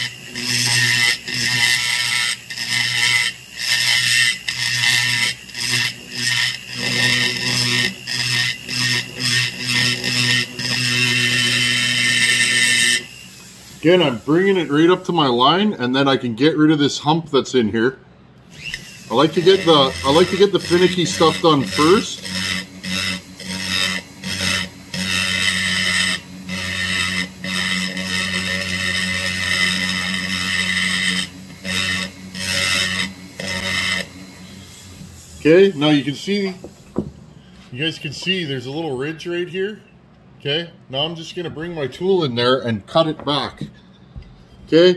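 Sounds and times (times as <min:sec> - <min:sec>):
rotary grinder grinding metal: 0:00.0 - 0:15.0, 0:18.5 - 0:37.0.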